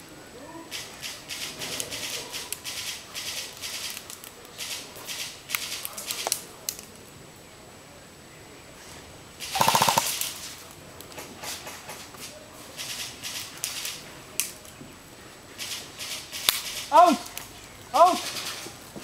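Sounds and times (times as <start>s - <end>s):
airsoft gunfire pops: 9.5s - 10.3s.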